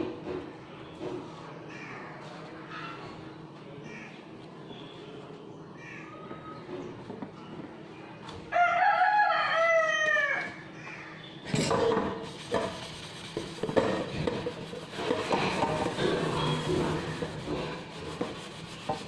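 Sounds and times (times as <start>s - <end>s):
sponge scrubbing steel pan: 12.2s - 19.0s.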